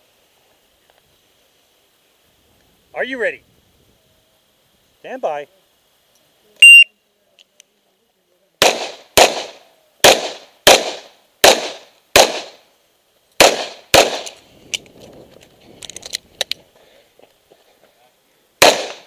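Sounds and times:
revolver gunshots: 0:08.6 - 0:12.6, 0:13.4 - 0:14.4, 0:18.6 - 0:19.0.

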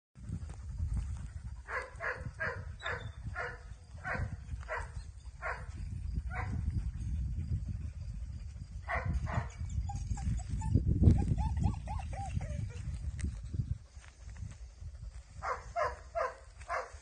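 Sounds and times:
dog barking: 0:01.7 - 0:05.7, 0:08.9 - 0:09.5, 0:15.4 - 0:17.0.

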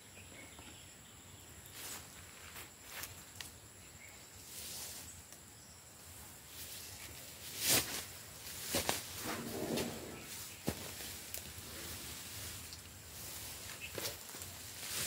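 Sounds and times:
leaves rustling: 0:01.7 - 0:03.6, 0:04.3 - 0:05.4, 0:06.0 - 0:15.0.

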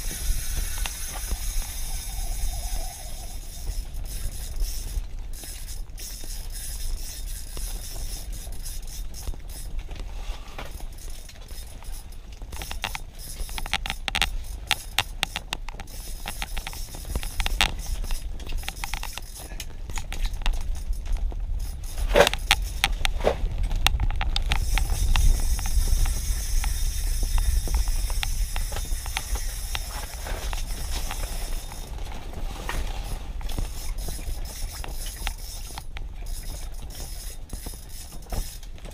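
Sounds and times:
fishing reel clicking and rattling: 0:00.0 - 0:32.1, 0:32.7 - 0:38.9
steady low rumble: 0:00.0 - 0:37.5.

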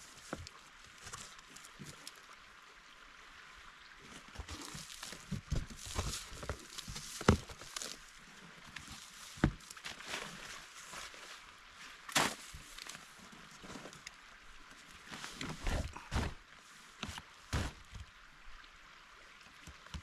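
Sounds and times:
cardboard and packing rustling: 0:04.4 - 0:08.0, 0:15.2 - 0:16.4.

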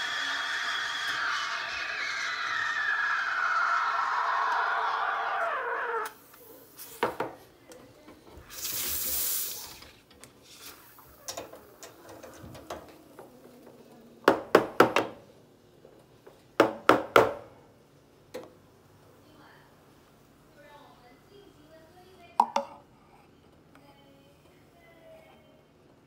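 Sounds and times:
steam wand frothing milk: 0:00.0 - 0:07.1.

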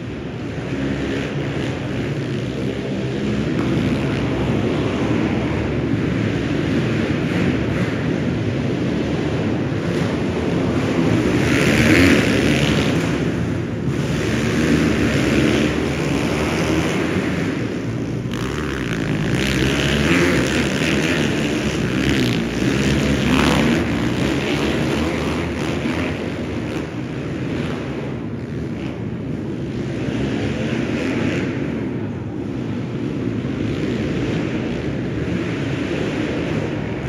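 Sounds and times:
pit bike engines revving: 0:00.0 - 0:37.0.

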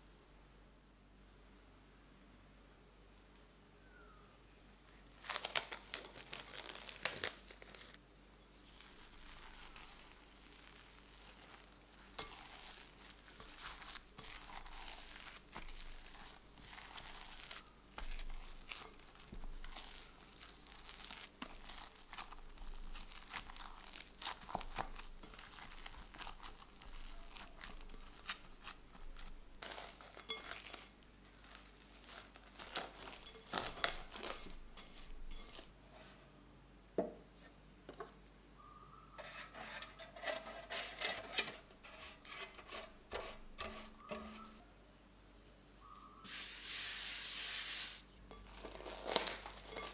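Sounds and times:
wet dough tearing and crackling: 0:05.0 - 0:08.0, 0:08.6 - 0:35.7, 0:48.3 - 0:49.9.

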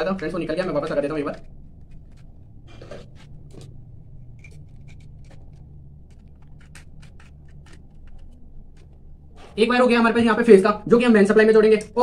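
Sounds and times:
steady low hum: 0:00.0 - 0:12.0
screwdriver scraping and clicking: 0:01.2 - 0:09.5.

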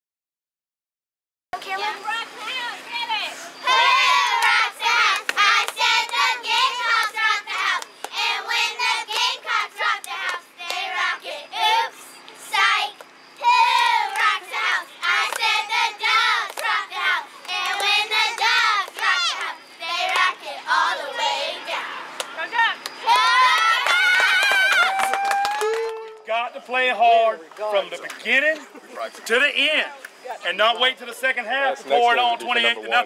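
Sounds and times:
girls chanting a cheer: 0:01.7 - 0:24.8.

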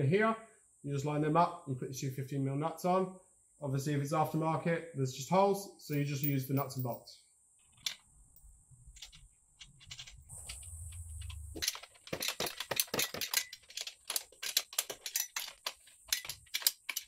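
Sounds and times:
light metallic clinks: 0:05.9 - 0:07.1.

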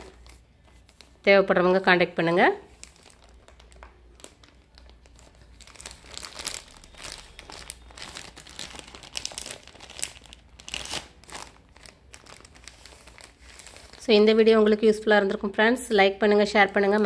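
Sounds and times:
plastic packets crinkling: 0:00.0 - 0:01.2, 0:02.6 - 0:14.7.

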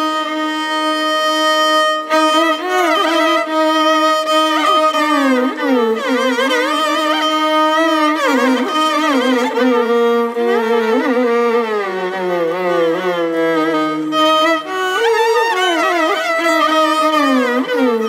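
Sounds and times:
violins playing in unison: 0:00.0 - 0:18.0.

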